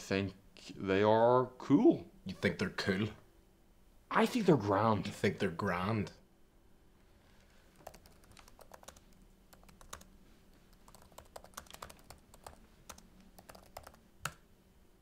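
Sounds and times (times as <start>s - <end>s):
typing on computer keyboard: 7.8s - 10.1s, 10.7s - 14.4s.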